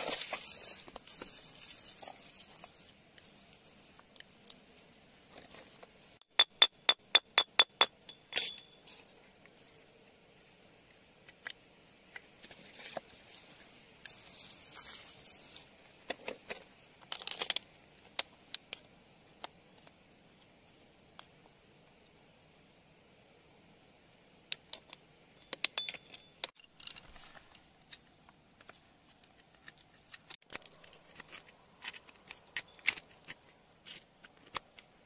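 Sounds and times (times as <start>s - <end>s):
metal tool clinking on stone: 6.4s - 8.9s, 25.4s - 27.0s.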